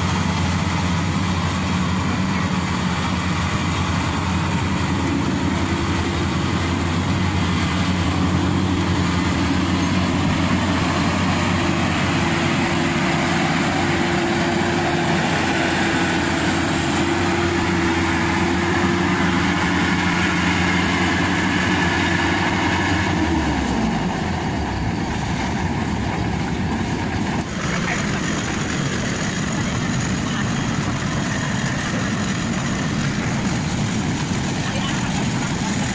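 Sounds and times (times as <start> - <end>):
clatter of threshing machinery: 0.0 - 35.9
harvester engine running: 0.0 - 35.9.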